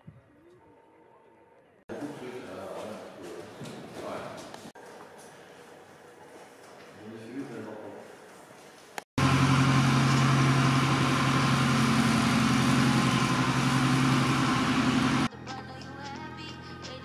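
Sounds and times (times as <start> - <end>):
light aircraft engine and propeller: 9.2 - 16.2.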